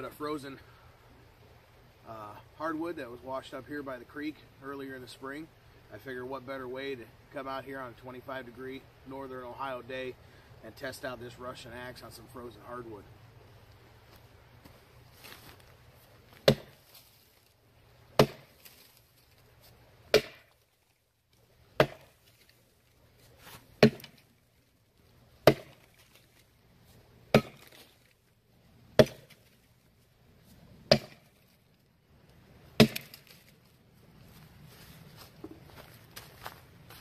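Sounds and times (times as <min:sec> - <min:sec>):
axe chopping into log: 0:16.4 - 0:16.8, 0:18.2 - 0:18.7, 0:20.1 - 0:20.5, 0:21.8 - 0:22.2, 0:23.5 - 0:24.2, 0:25.4 - 0:26.0, 0:27.3 - 0:27.9, 0:29.0 - 0:29.5, 0:30.9 - 0:31.3, 0:32.8 - 0:33.3.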